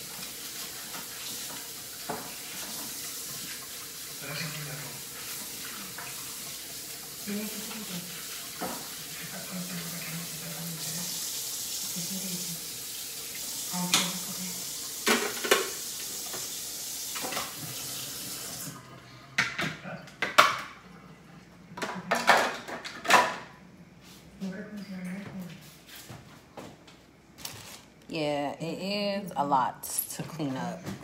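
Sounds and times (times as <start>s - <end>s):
tap running into a sink: 0.0s - 3.8s, 7.6s - 9.1s, 13.3s - 18.7s.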